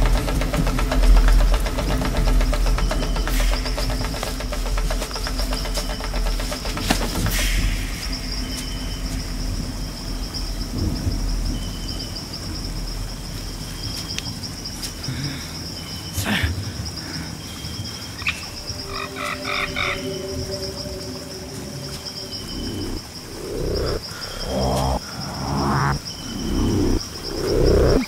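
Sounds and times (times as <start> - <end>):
high insect-like trill: 0.0 - 16.4, 17.4 - 28.0
frogs croaking: 0.0 - 28.0
rapid repeated animal calls: 18.1 - 28.0.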